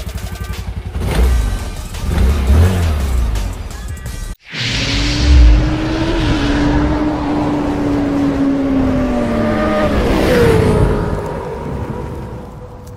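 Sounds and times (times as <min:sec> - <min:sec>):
rushing whoosh: 0:04.4 - 0:11.2
motorcycle engine: 0:04.6 - 0:12.7.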